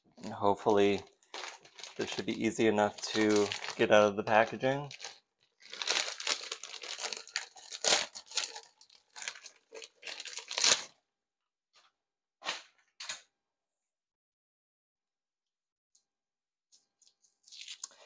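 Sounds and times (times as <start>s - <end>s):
plastic and paper crinkling: 0.1s - 10.9s, 16.8s - 18.0s.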